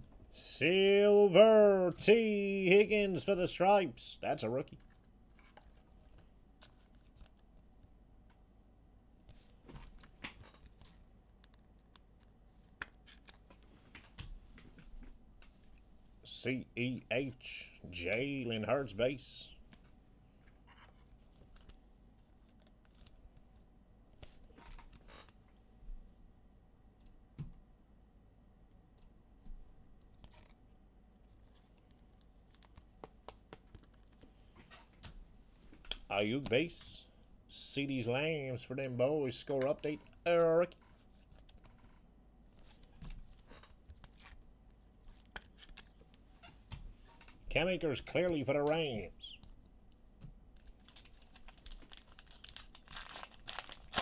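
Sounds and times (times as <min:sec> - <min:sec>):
trading cards clicking and rustling: 0:32.5 - 0:34.3.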